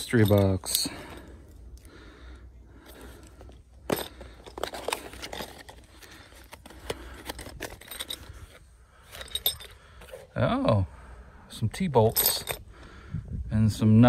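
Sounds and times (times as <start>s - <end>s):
metal hardware clinking: 0.0s - 1.2s, 3.4s - 10.2s, 12.0s - 12.6s.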